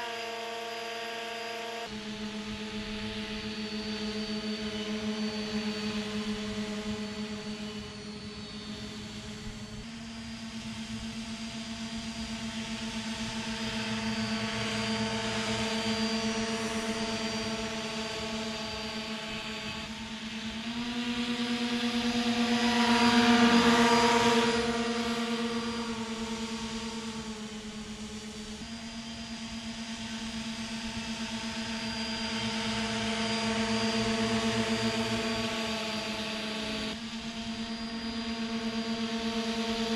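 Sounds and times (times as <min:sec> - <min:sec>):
model hovercraft propellers running: 0:00.0 - 0:39.9.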